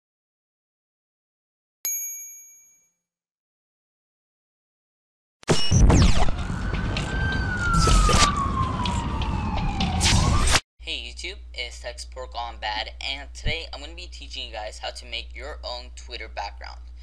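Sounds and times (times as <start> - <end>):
bright chime: 1.9 - 3.0
falling siren-like tone: 5.5 - 10.6.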